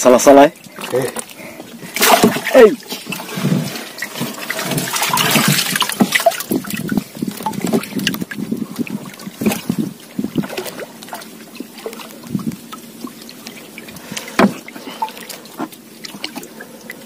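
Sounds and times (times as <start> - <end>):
small waves lapping against hull: 0.0 - 17.0
light knocks on canoe: 14.4 - 14.6.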